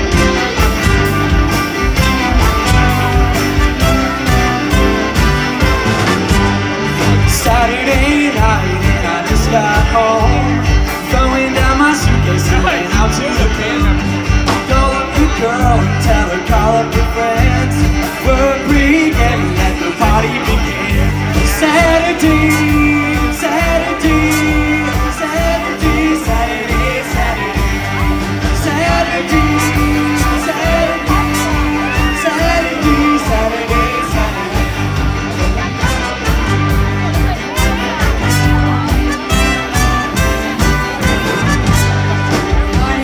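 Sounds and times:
drums: 0.0s - 43.0s
electric guitars: 0.0s - 43.0s
lead vocal singing: 7.0s - 36.2s, 41.2s - 43.0s.

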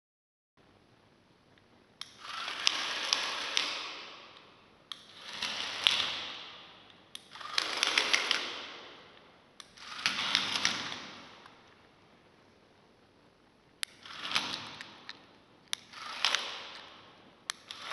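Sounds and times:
small gear motors whirring: 2.1s - 3.8s.

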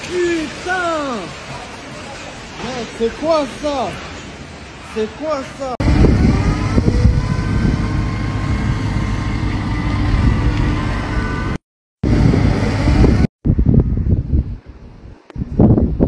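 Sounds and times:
diesel engine rumbling with whine: 5.8s - 15.6s.

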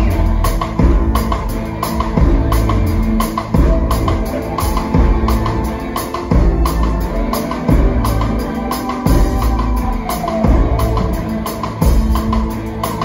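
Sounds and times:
live rock band: 0.0s - 13.0s.

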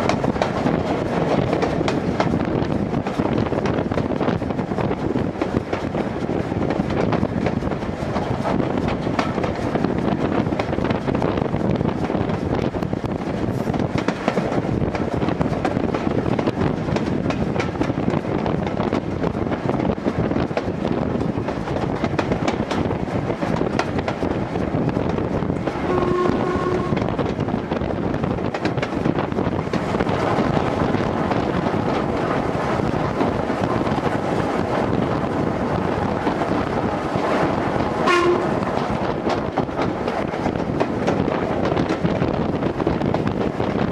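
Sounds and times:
wheels on track: 0.0s - 43.9s
steam locomotive whistle: 25.8s - 27.0s, 38.0s - 38.6s.

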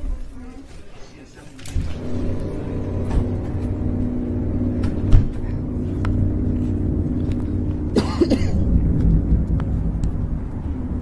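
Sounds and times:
low droning hum: 1.7s - 11.0s
person coughing: 7.9s - 8.8s.

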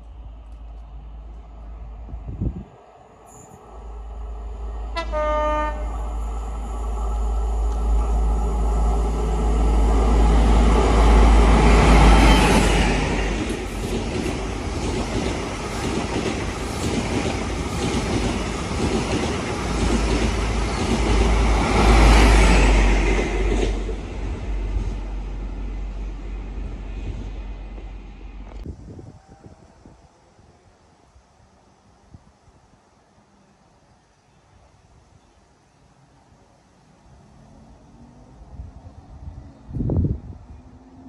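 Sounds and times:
high-speed train passing: 0.0s - 35.0s, 35.7s - 41.0s
clatter of train wheels: 12.4s - 21.6s.

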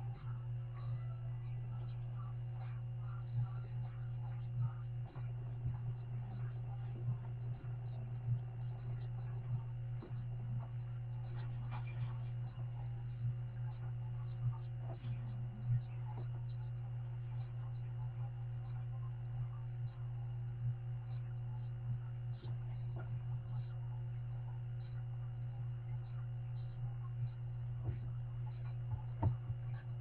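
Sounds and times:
low electrical hum: 0.0s - 30.0s
faint ticks and knocks: 25.9s - 30.0s.

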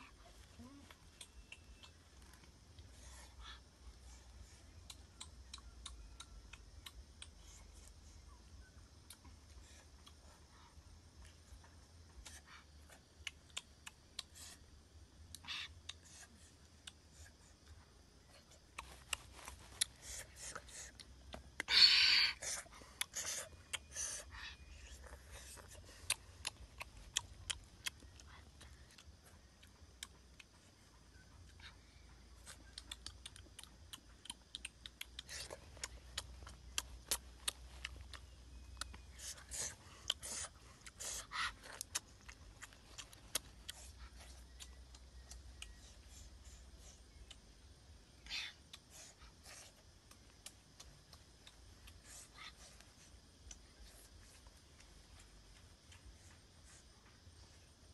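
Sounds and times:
small clicks and crinkles: 18.3s - 20.0s, 41.5s - 45.9s.

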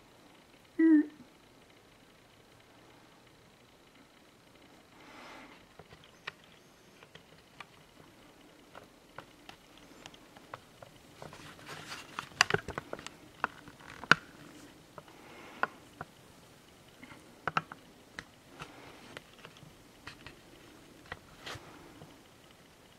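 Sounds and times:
handling clicks and taps: 17.4s - 20.4s.

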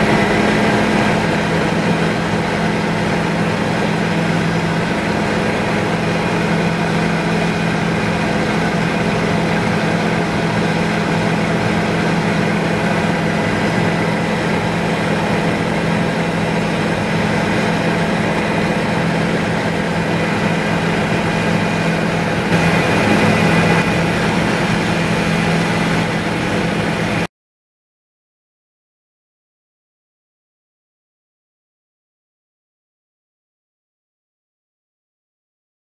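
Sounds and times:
helicopter engine and rotors drone: 0.0s - 27.3s.

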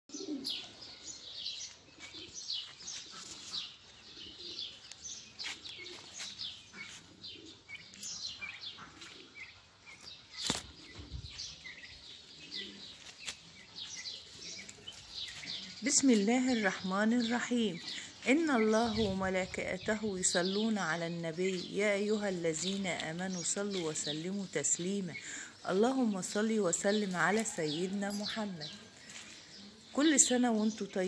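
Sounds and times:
small birds chirping: 0.1s - 31.0s.

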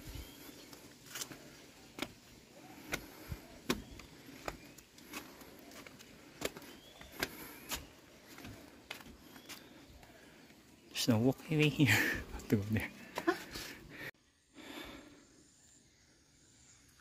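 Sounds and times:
outdoor background hiss: 0.0s - 17.0s
footsteps walking: 0.7s - 9.8s.

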